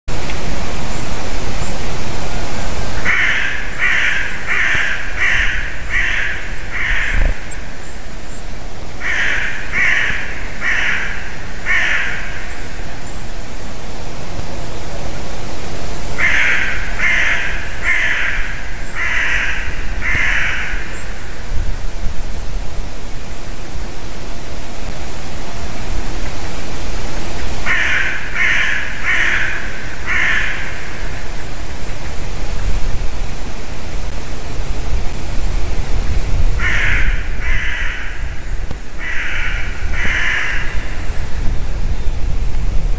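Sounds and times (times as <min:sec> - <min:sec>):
background hiss: 0:00.1 - 0:42.9
crow cawing: 0:03.0 - 0:07.9, 0:09.0 - 0:13.0, 0:16.2 - 0:21.4, 0:27.6 - 0:31.4, 0:36.6 - 0:41.2.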